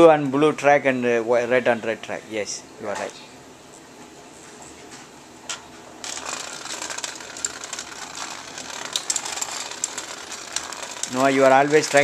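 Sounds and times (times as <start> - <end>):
toy robot bugs buzzing: 6.0 - 12.0.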